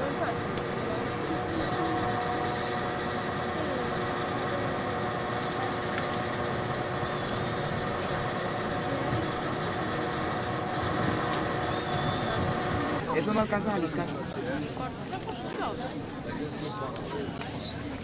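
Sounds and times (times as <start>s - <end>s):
mechanical drone with hiss: 0.0s - 14.1s.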